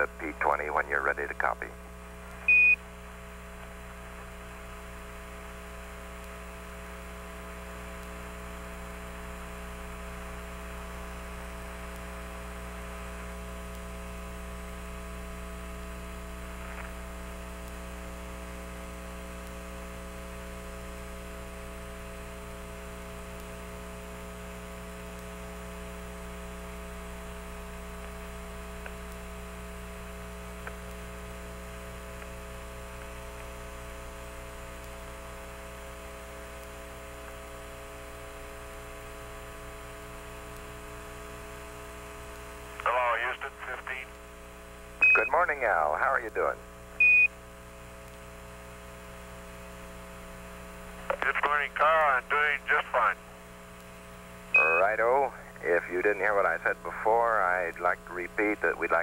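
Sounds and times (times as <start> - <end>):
electrical hum with static hiss: 0.0 - 59.0
faint clicks: 48.0 - 48.2
fixed tones: 54.6 - 55.0.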